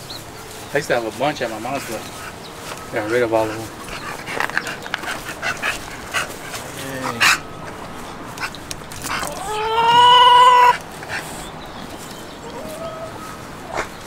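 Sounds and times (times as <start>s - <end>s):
dog yelping: 2.6s - 11.2s, 12.4s - 14.0s
dog whining: 8.4s - 10.8s, 12.4s - 14.0s.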